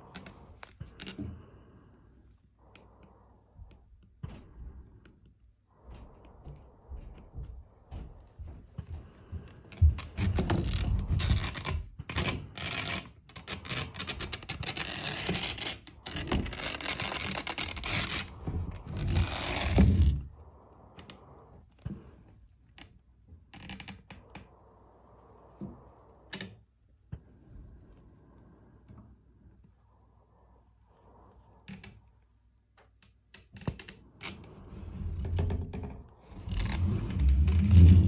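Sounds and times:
gloved hand rubbing and scraping: 0:00.0 - 0:32.5, 0:34.0 - 0:38.0.

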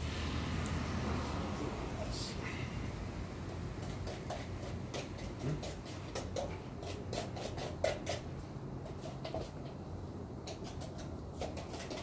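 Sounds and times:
steady low rumble: 0:00.0 - 0:05.7.

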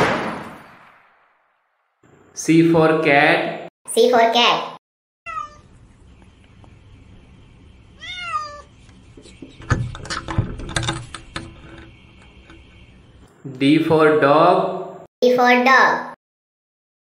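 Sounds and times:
cat meowing: 0:05.3 - 0:05.7, 0:08.0 - 0:08.7
knocks and rustling: 0:08.7 - 0:13.3.

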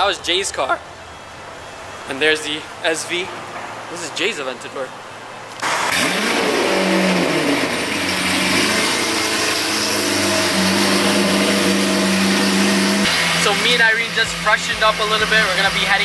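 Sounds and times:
car engine starting and idling: 0:05.4 - 0:16.0.

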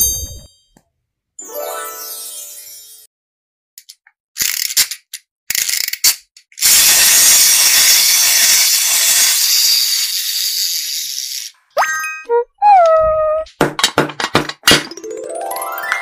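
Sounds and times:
toy ratcheting clicks: 0:03.8 - 0:11.6
toy rasping rattle: 0:04.4 - 0:11.6.

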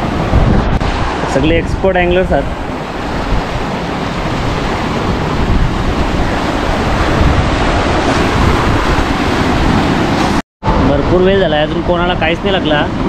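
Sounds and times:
surf breaking on rocks: 0:00.0 - 0:10.4
wind buffeting microphone: 0:00.0 - 0:13.0.

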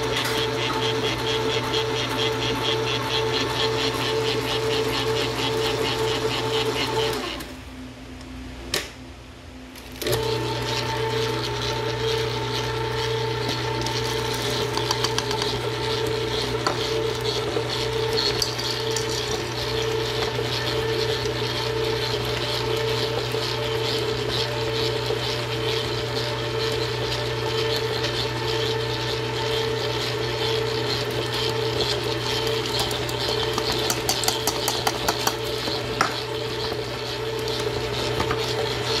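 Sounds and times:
stand mixer humming: 0:00.0 - 0:07.6, 0:09.9 - 0:39.0.

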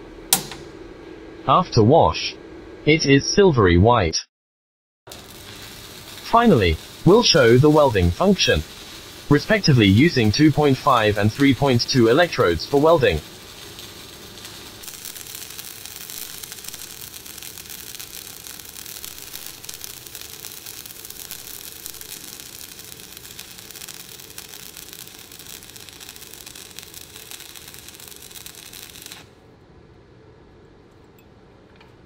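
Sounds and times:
welding arc crackling: 0:00.3 - 0:00.8, 0:05.1 - 0:29.5.

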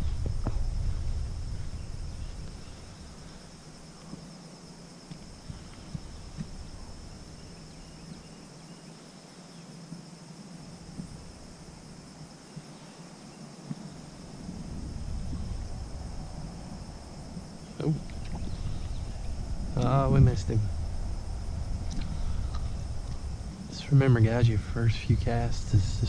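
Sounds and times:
insects chirping: 0:00.0 - 0:26.0
faint clicks: 0:21.8 - 0:23.2.

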